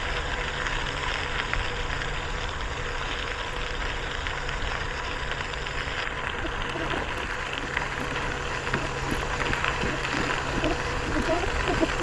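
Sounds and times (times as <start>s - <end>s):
bicycle tyres on gravel: 0.0s - 12.0s
wind on microphone: 6.4s - 12.0s.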